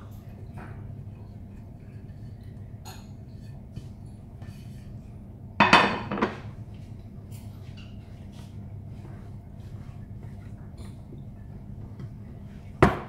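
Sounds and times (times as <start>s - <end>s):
ceramic dish clattering on countertop: 5.6s - 6.4s.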